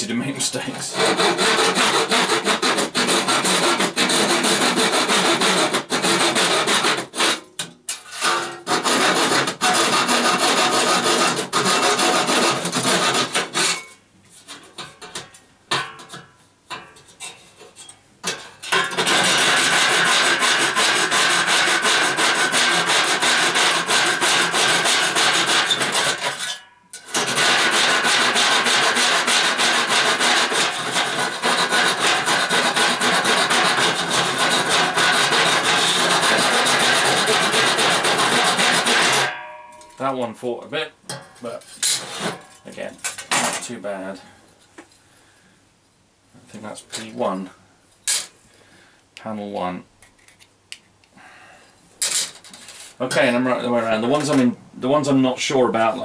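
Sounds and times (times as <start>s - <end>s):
hand saw cutting metal: 0.8s - 15.3s, 18.2s - 39.4s, 41.8s - 42.8s.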